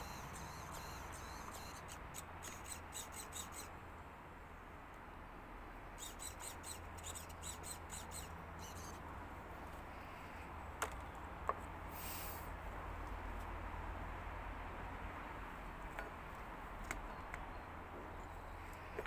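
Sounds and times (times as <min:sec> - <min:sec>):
faint songbird chirping: 0:00.0 - 0:03.8, 0:04.5 - 0:11.3, 0:16.3 - 0:19.0
low steady background rumble: 0:00.0 - 0:19.0.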